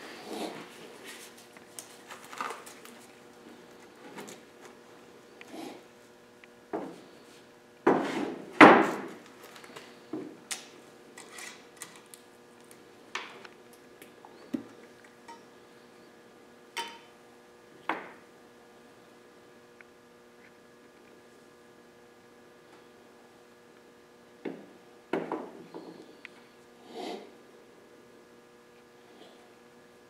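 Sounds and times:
faint steady hum: 0.0s - 30.0s
jars and can clinking on table: 16.8s - 17.1s.

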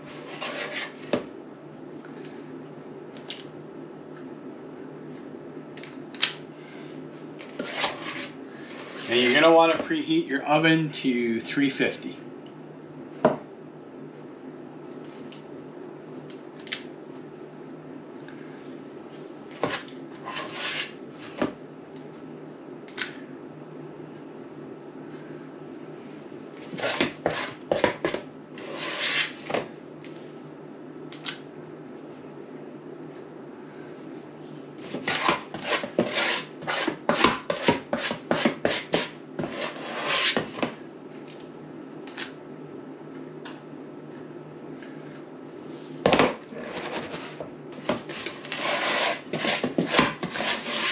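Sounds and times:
spoon scraping bowl: 0.0s - 1.1s, 19.7s - 21.0s, 26.7s - 29.4s, 34.9s - 40.7s, 46.6s - 50.9s
low room hum: 0.0s - 50.9s.

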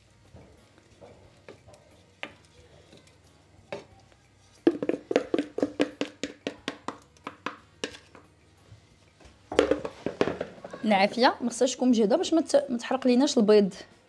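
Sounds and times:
spatula knocking on frying pan: 4.6s - 8.2s, 9.5s - 10.7s.

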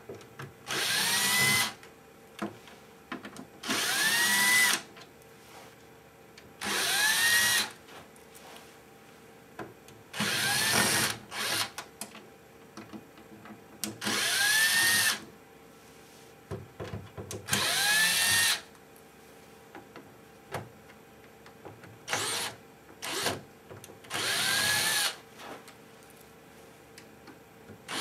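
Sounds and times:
cordless drill whirring: 0.7s - 1.8s, 3.6s - 4.8s, 6.6s - 7.7s, 10.2s - 11.8s, 14.0s - 15.2s, 17.5s - 18.7s, 22.1s - 23.4s, 24.1s - 25.2s.

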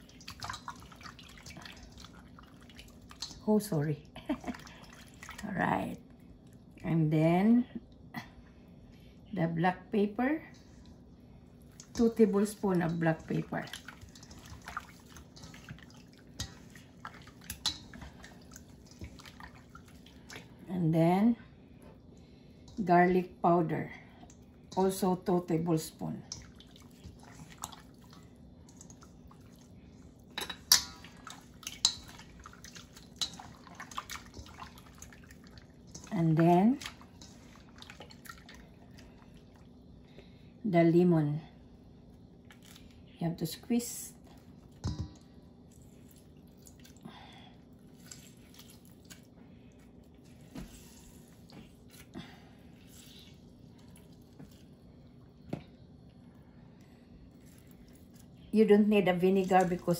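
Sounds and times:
wet squishing of meat: 0.0s - 5.5s, 10.5s - 20.7s, 23.9s - 40.4s, 41.9s - 43.1s, 44.1s - 59.9s
clinks against metal bowl: 30.4s - 31.2s.

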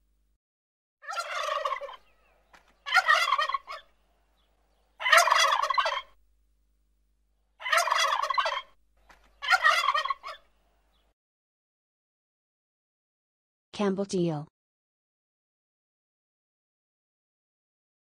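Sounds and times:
turkey gobbling: 1.0s - 6.2s, 7.6s - 11.1s.

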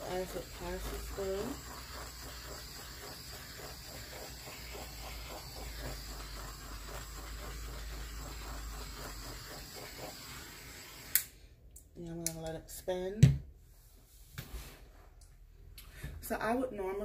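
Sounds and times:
torch flame hissing: 0.0s - 11.3s.

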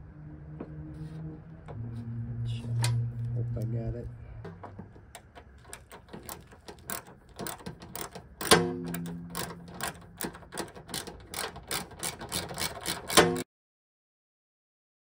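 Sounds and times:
socket ratchet clicking: 5.0s - 13.4s.

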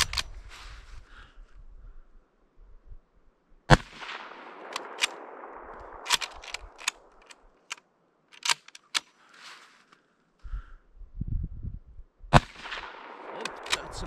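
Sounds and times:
rifle bolt clicking: 0.0s - 0.4s, 4.6s - 9.2s
rifle shot echo: 3.7s - 7.7s, 12.3s - 14.0s.

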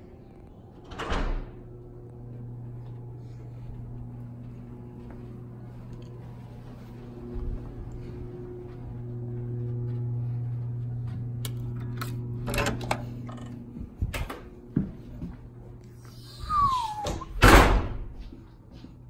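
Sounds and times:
steady hum: 0.0s - 19.0s
door squeak: 16.2s - 17.8s
door thump: 17.0s - 18.1s.

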